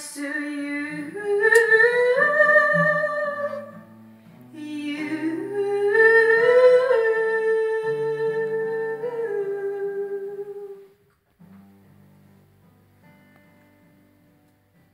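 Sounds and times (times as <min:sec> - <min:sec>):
acoustic guitar: 0:00.0 - 0:14.9
woman singing a long note: 0:04.6 - 0:10.8.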